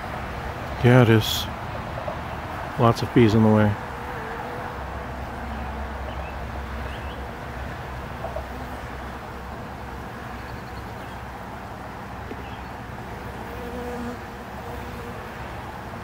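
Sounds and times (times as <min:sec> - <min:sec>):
honeybees humming: 0:02.3 - 0:16.0.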